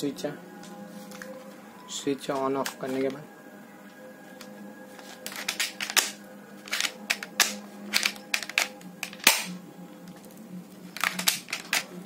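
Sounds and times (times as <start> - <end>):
plastic toy pistol clicks: 5.5 - 9.5.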